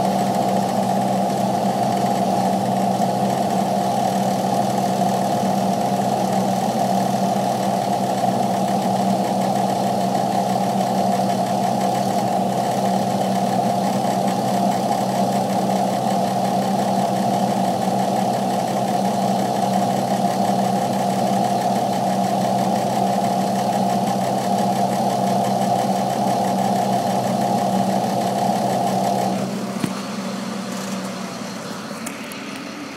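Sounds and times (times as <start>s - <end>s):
diesel engine idling: 0.0s - 32.9s
higher steady hum: 17.6s - 32.9s.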